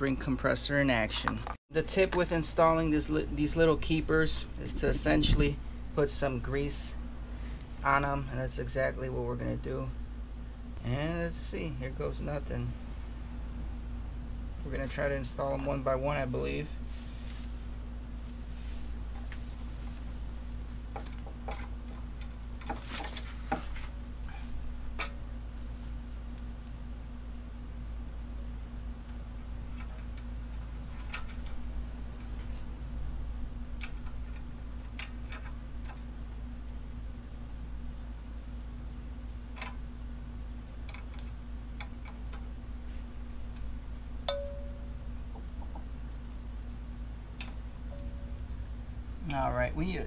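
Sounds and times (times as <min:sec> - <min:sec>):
steady low hum: 0:00.0 - 0:50.0
bright metal tap ringing: 0:44.3 - 0:45.0.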